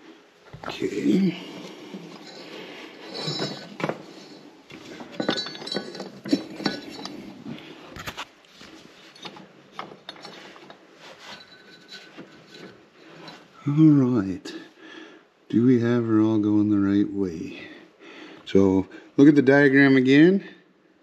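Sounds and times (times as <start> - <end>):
metallic clinks and knocks: 0.6 - 13.6.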